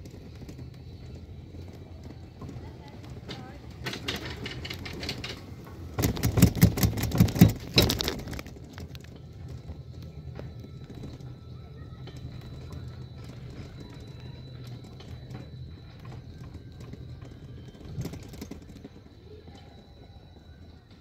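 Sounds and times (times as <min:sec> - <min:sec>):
chairlift rattling and clicking: 0:00.0 - 0:21.0.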